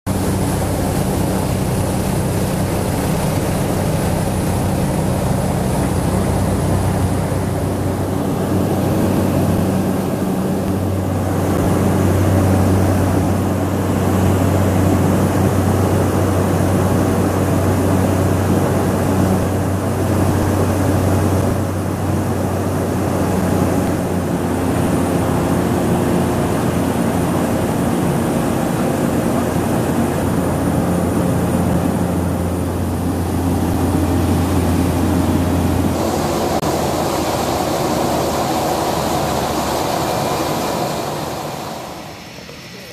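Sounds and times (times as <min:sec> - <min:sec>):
propeller plane engine drone: 0:00.1 - 0:42.9.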